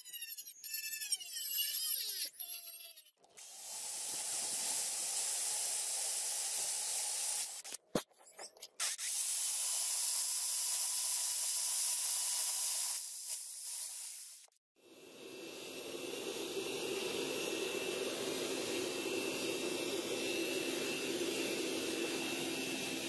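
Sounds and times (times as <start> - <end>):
power drill boring through steel: 14.9 - 23.0.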